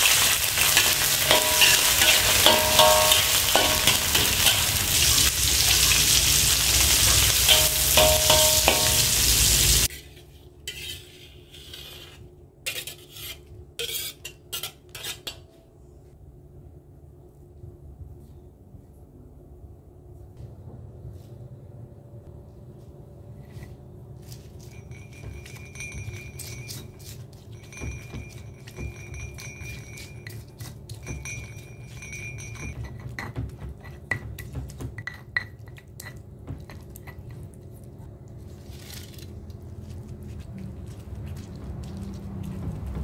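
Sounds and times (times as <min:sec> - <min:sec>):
stone pestle scraping in mortar: 0:07.5 - 0:15.5, 0:23.5 - 0:37.4.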